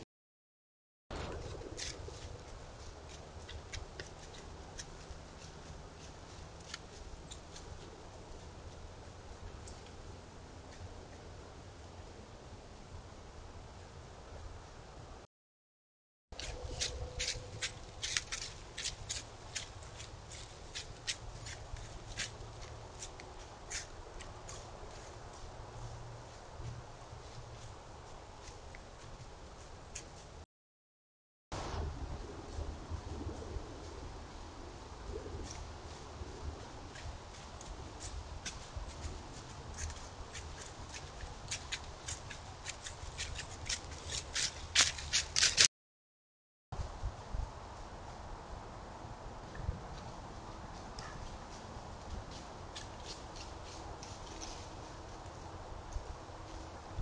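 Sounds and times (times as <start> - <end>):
dry leaves crunching: 16.4 - 25.2, 38.3 - 45.7.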